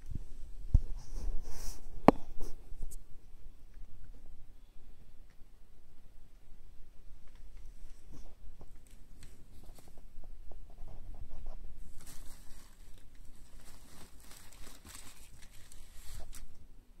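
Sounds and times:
plastic sheeting crinkling: 0:10.7 - 0:16.6.

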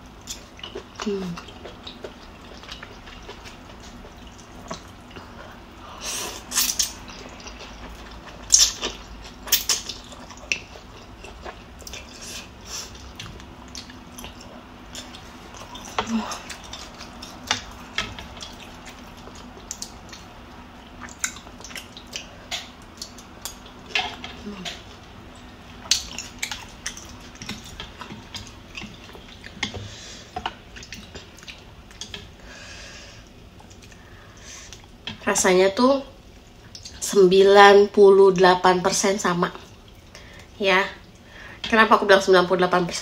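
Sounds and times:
wet chewing: 0:00.1 - 0:05.7, 0:06.4 - 0:32.4.

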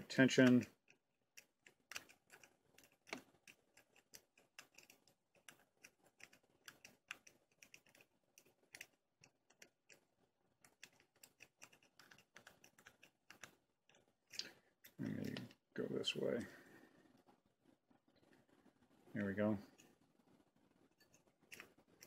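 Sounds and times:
lock pick clicking and scratching: 0:00.4 - 0:15.4, 0:21.0 - 0:22.0.

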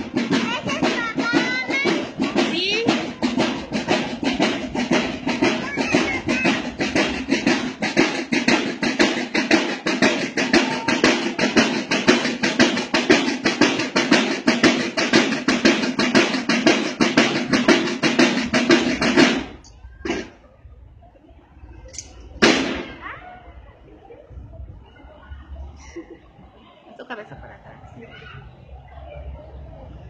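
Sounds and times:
marching band drums: 0:00.0 - 0:20.4, 0:22.3 - 0:23.0.

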